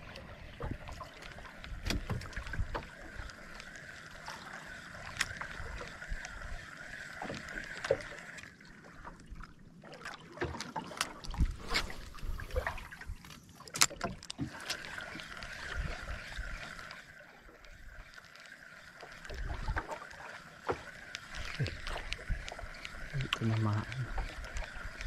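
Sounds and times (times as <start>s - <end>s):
clicks and knocks in boat: 0.6s - 3.2s, 12.6s - 16.0s.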